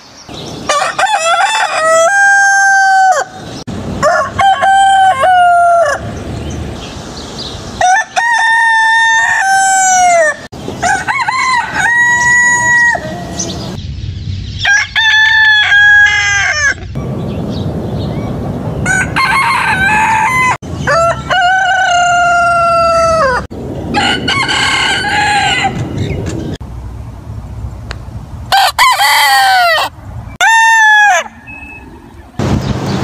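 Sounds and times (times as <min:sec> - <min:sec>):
chickens crowing: 0:00.6 - 0:06.5, 0:07.7 - 0:13.7, 0:14.6 - 0:17.0, 0:18.8 - 0:26.5, 0:28.5 - 0:32.4.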